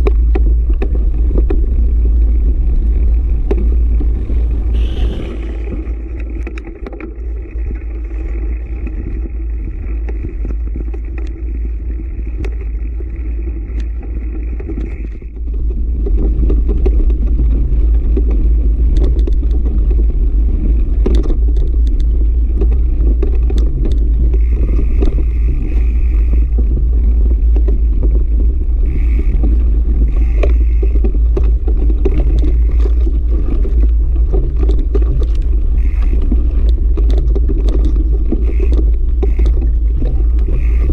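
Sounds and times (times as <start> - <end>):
bike clicks and rattles: 0.0 - 40.9
tyres on loose dirt: 0.0 - 40.9
wind rumble on microphone: 0.0 - 40.9
steady high buzz: 4.1 - 6.3, 28.6 - 31.0.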